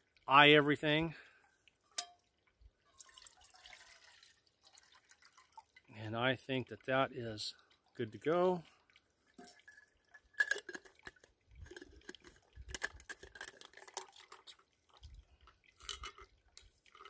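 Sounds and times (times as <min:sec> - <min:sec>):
cooking gear clinking and tapping: 0:01.9 - 0:02.2, 0:09.4 - 0:14.6, 0:15.8 - 0:17.0.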